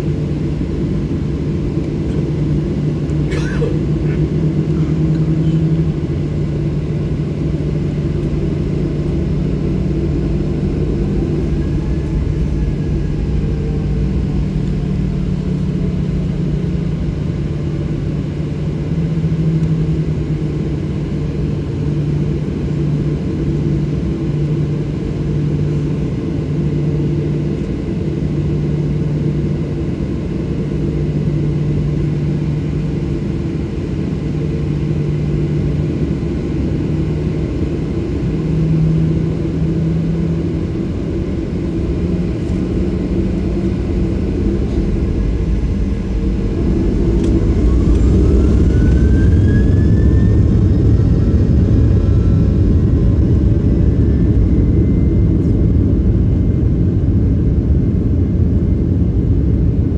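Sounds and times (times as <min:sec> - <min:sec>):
jet engines idling drone: 0:00.0 - 0:59.9.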